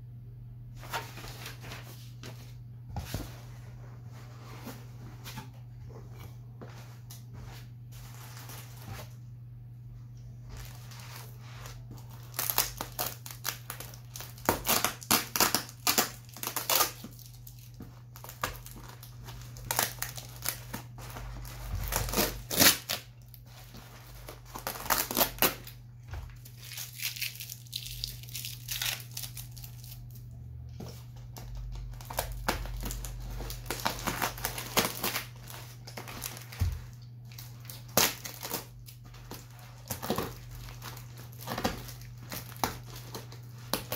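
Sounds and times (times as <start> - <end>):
plastic wrapping crinkling: 10.5 - 43.9
packing tape tearing: 12.0 - 23.4, 24.0 - 25.8, 26.5 - 30.2, 31.9 - 36.6, 37.3 - 43.9.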